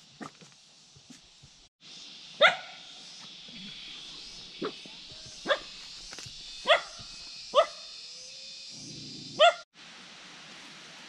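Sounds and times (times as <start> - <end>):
background hiss: 0.0 - 11.0
dog barking: 2.4 - 2.8, 5.4 - 5.7, 6.6 - 7.0, 7.6 - 7.8, 9.4 - 9.6.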